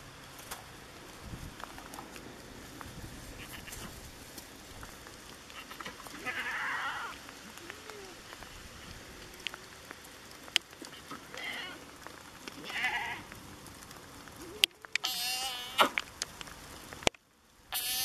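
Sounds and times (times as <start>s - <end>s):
light rain patter: 0.0s - 18.0s
goats bleating: 5.6s - 8.2s, 12.6s - 13.3s.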